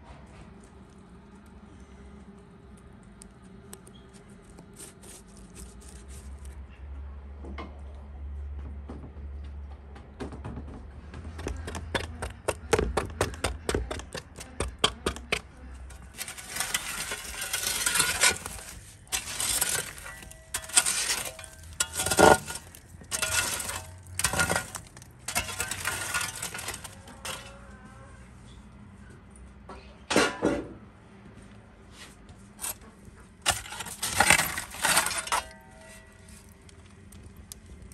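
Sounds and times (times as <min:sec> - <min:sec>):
poker scraping embers on brick: 0:03.8 - 0:06.6, 0:13.4 - 0:27.6, 0:32.6 - 0:36.6.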